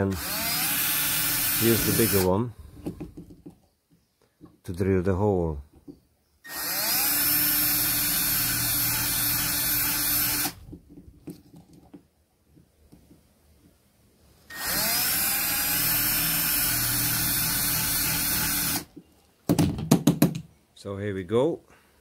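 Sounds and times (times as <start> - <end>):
cordless drill drilling: 0.0 - 2.3, 6.5 - 10.6, 14.5 - 18.9.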